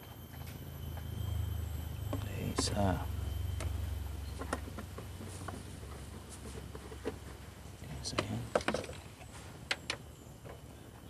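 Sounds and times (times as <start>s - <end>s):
low hum: 0.0s - 8.1s.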